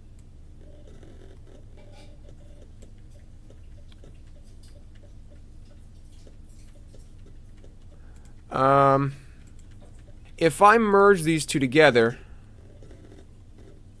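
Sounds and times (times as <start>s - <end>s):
low steady hum: 0.0s - 14.0s
computer keys clicking: 9.4s - 10.4s.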